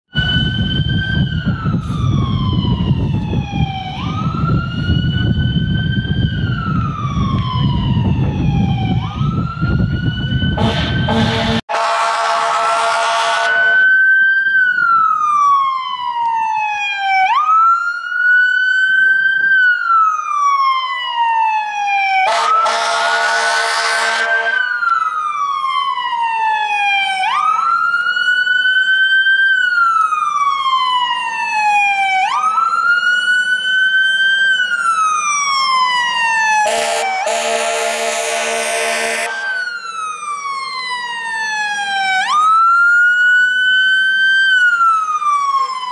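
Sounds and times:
fire engine siren wailing: 0.1s - 45.9s
truck horn blasts: 10.6s - 13.8s, 22.3s - 24.6s, 36.7s - 39.6s.

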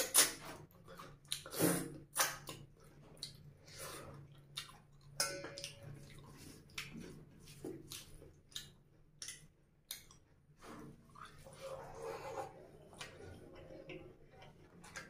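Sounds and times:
wet chewing and lip smacks: 0.0s - 7.1s, 7.8s - 10.3s.

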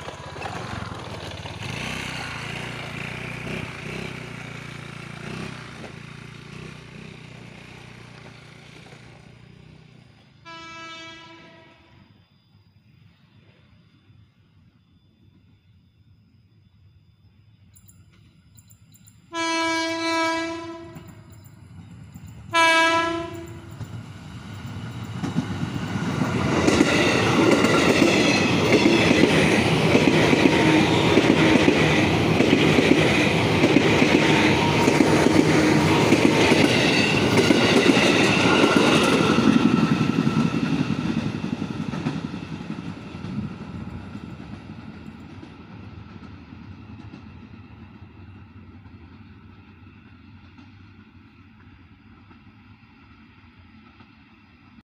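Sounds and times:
train wheels clattering over rail joints: 0.0s - 9.4s, 23.2s - 49.8s
train horn blasts: 10.4s - 12.0s, 19.3s - 21.3s, 22.5s - 23.7s.

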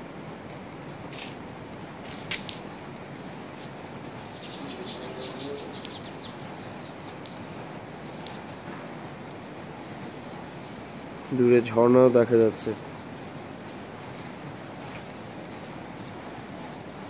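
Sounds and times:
rain falling: 0.0s - 17.0s
bird chirping: 3.5s - 7.3s.

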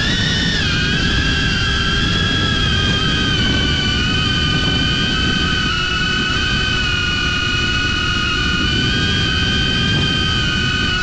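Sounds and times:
drone motors whining: 0.0s - 11.0s
wind rumble on microphone: 0.0s - 11.0s.

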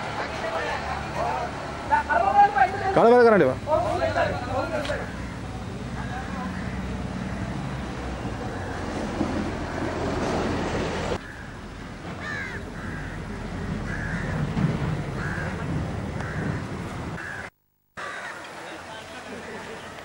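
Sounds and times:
outdoor background noise: 0.0s - 20.0s
crow cawing: 6.4s - 6.9s, 11.2s - 11.6s, 12.2s - 14.4s, 15.2s - 18.5s.

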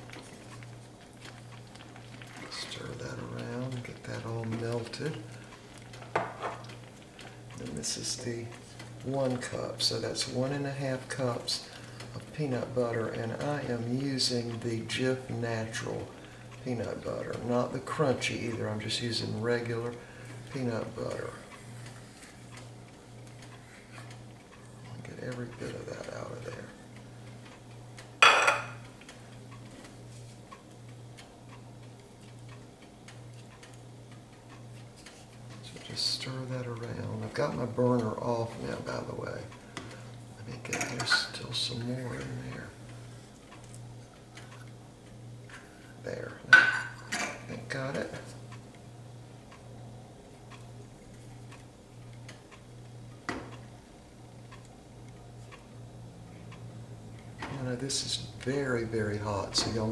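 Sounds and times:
spatula ticking against saucepan: 0.0s - 21.6s
boiling sugar ticking and popping: 0.0s - 59.9s
low steady hum: 0.0s - 59.9s.

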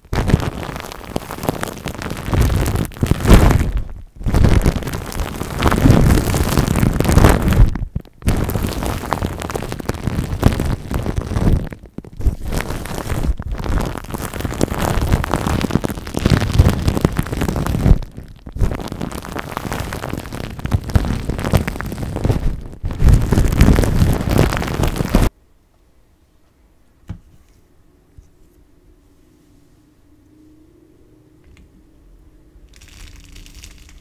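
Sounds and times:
slime squishing and crackling: 0.0s - 25.3s, 32.7s - 34.0s.

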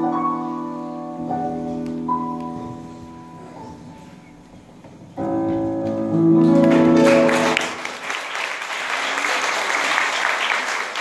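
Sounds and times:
audience applause: 6.4s - 11.0s.

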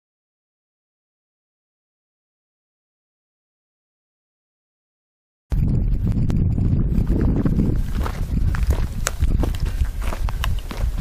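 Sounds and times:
wind buffeting microphone: 5.5s - 11.0s.

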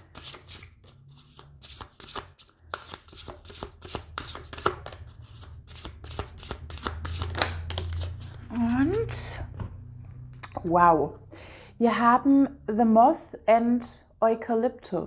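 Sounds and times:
cards being shuffled: 0.0s - 9.1s.

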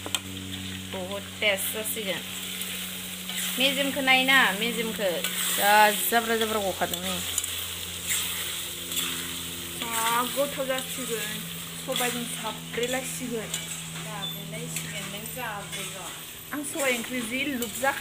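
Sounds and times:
meat sizzling in hot oil: 0.0s - 18.0s
spatula stirring in wok: 2.2s - 18.0s
wavering squealing pitched sounds: 7.6s - 18.0s.

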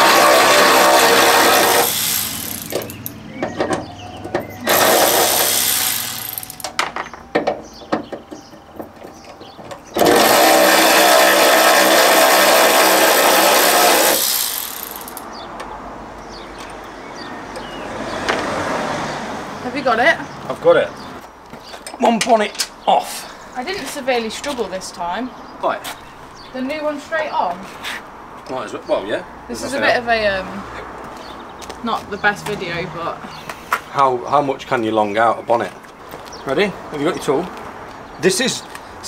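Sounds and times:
cordless power tool whirring: 0.0s - 3.1s, 4.7s - 6.7s, 10.0s - 15.2s.

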